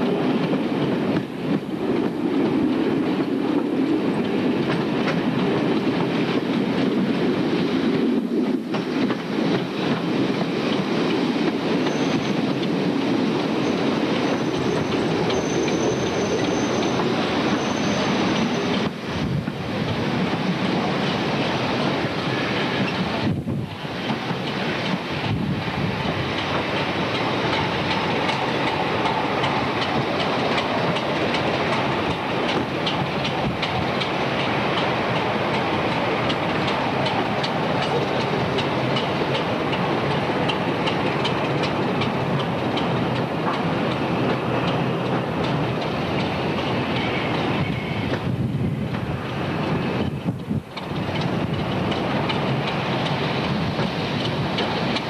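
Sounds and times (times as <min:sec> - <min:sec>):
train rumbling along track: 0:00.0 - 0:55.0
wheels clicking over rail joints: 0:24.0 - 0:55.0.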